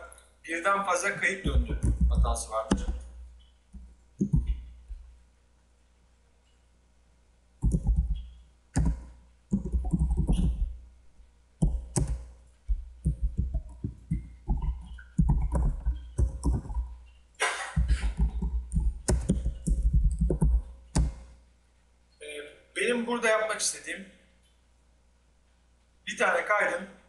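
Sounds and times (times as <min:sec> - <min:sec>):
keyboard typing clicks: 0:01.4 - 0:05.0, 0:07.6 - 0:10.8, 0:11.6 - 0:17.2, 0:17.8 - 0:21.3.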